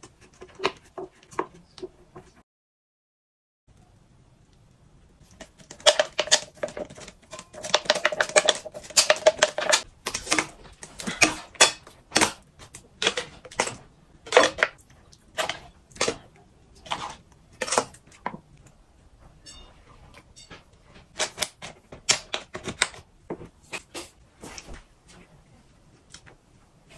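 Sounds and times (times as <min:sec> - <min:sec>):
crackles and clicks: 0:03.7 - 0:24.2.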